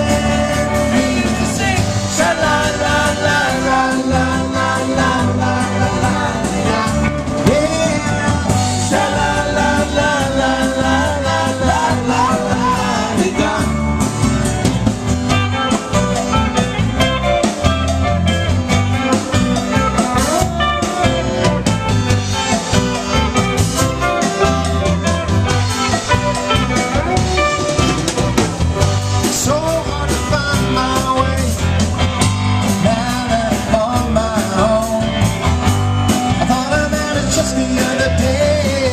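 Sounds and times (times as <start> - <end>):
man singing into a microphone: 0.0 - 14.1, 29.2 - 31.7, 32.7 - 35.4, 36.3 - 38.9
acoustic guitars strumming: 0.0 - 38.9.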